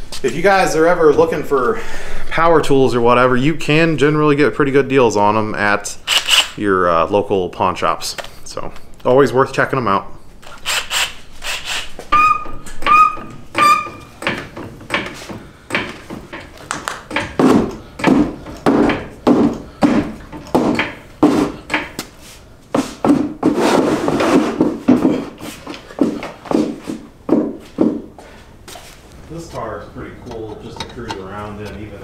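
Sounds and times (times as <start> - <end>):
tools knocking and clunking: 12.0 - 22.2, 22.8 - 28.2, 29.4 - 32.0.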